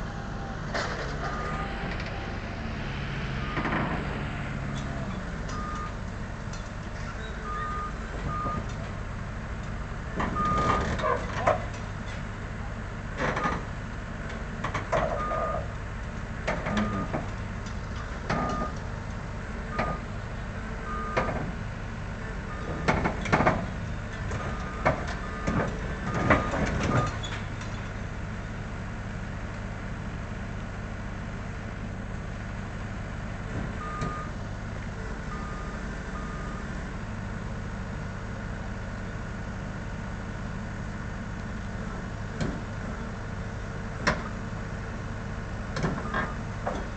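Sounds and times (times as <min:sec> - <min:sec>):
diesel engine running: 0:00.0 - 0:46.9
travel alarm beeps: 0:05.6 - 0:06.0, 0:07.4 - 0:08.7, 0:33.8 - 0:34.3, 0:35.3 - 0:36.7.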